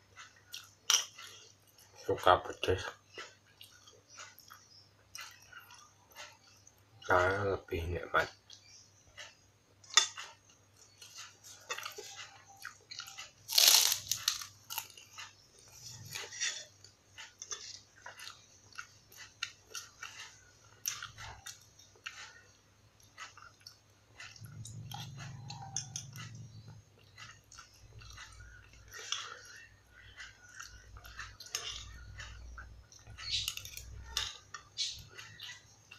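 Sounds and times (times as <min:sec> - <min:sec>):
crunching fried cracker: 0:11.0 - 0:22.4, 0:27.1 - 0:35.8.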